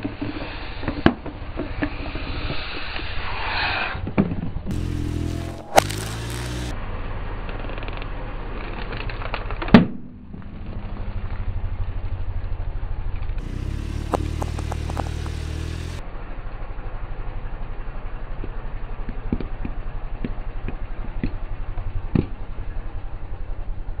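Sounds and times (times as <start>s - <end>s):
chalk cracking under tyre: 4.7s - 6.8s, 7.4s - 9.8s, 13.4s - 16.0s
car engine idling: 4.7s - 24.0s.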